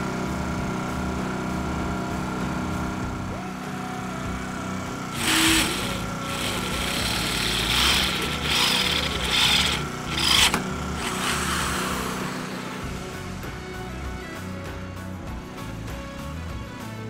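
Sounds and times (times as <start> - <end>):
steady low hum: 4.3 - 13.5.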